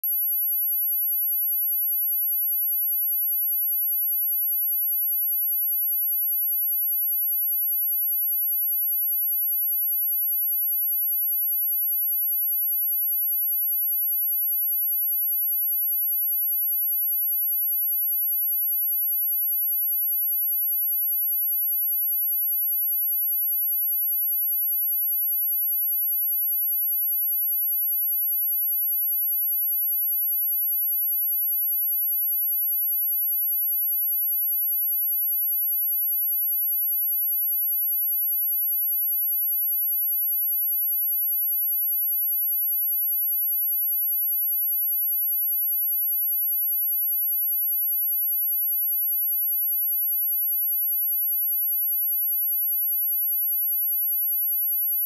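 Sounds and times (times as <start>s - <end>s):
high-pitched sine-wave test tone: 0.0s - 55.0s.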